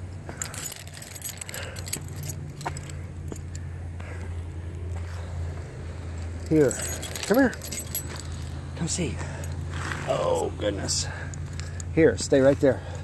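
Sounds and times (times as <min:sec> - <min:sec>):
road traffic hum: 0:00.0 - 0:13.0
metallic jingling and clicks: 0:00.2 - 0:03.7, 0:06.0 - 0:09.7, 0:10.4 - 0:12.7.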